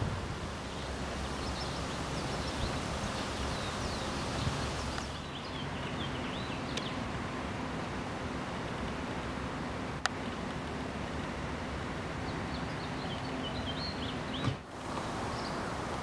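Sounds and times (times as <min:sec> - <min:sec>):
low rumble and hiss: 0:00.0 - 0:16.0
small birds chirping: 0:00.5 - 0:07.4, 0:11.9 - 0:16.0.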